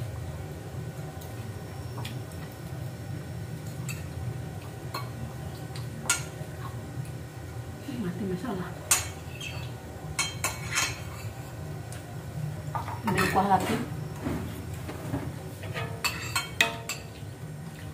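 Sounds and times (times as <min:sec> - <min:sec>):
spoon clinking against plates: 0:08.9 - 0:11.4, 0:15.6 - 0:17.2.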